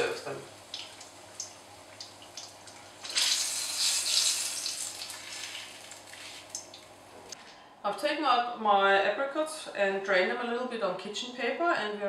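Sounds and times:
batter sizzling in hot oil: 0.0s - 6.8s.

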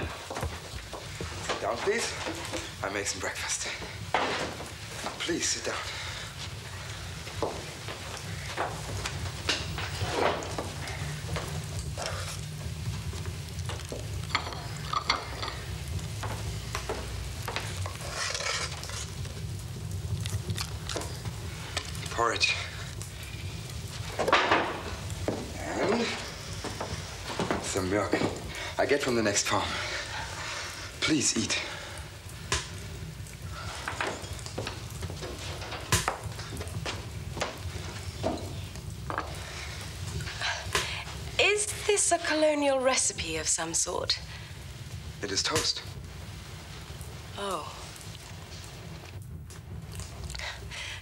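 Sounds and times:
crockery clinking: 14.3s - 15.7s.

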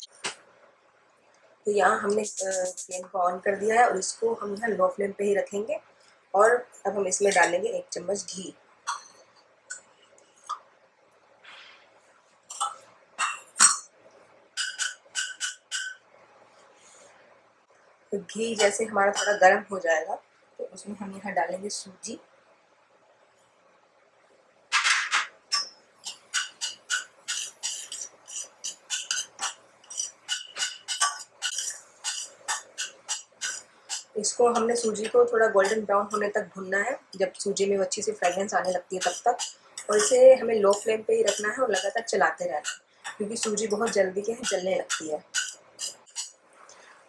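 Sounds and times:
spoon clinking on saucepan: 14.6s - 16.0s, 19.1s - 19.5s, 25.5s - 34.8s, 39.0s - 42.0s, 42.6s - 46.3s.

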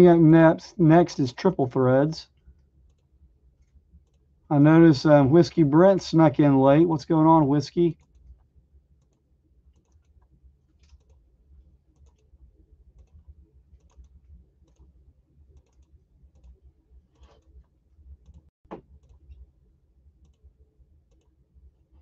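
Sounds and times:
low steady hum: 0.0s - 22.0s
keyboard and mouse clicks: 9.0s - 11.2s, 12.0s - 12.3s, 13.0s - 14.9s, 15.6s - 17.6s.

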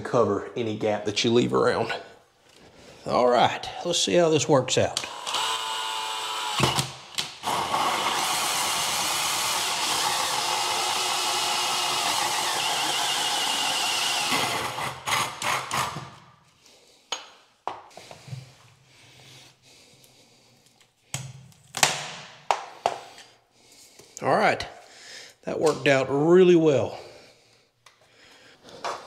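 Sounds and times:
cordless drill cutting with hole saw: 5.0s - 16.2s.

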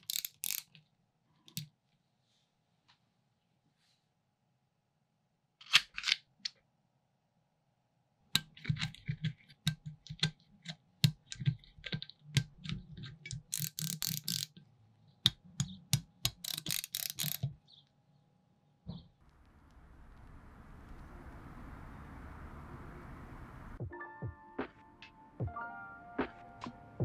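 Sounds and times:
small ratchet clicking: 0.0s - 0.8s, 13.3s - 14.6s, 16.2s - 17.5s.

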